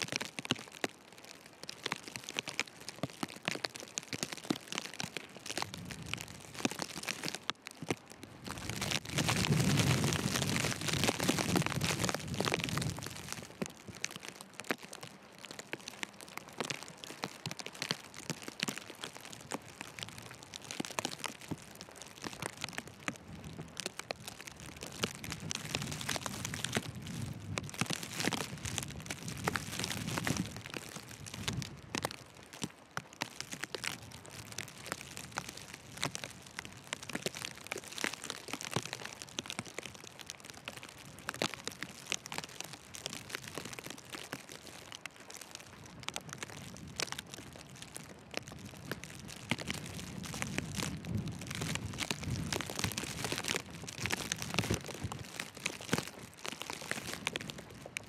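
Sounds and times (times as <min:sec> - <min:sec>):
wind rumble on microphone: 0:04.3 - 0:07.4, 0:08.1 - 0:15.0, 0:17.5 - 0:32.7, 0:45.6 - 0:58.0.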